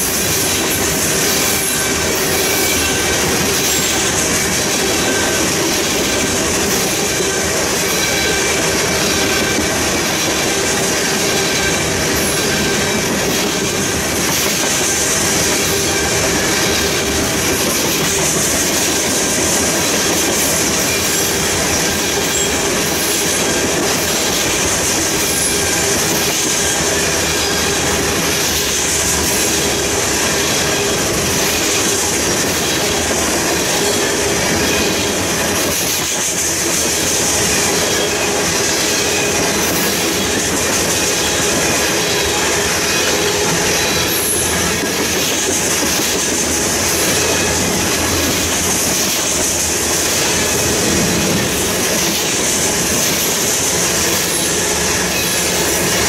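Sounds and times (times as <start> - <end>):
train wheels rolling on rails: 0.0 - 56.0
thin high wheel squeal: 0.2 - 9.6, 20.5 - 24.6, 25.2 - 33.0, 37.0 - 45.6.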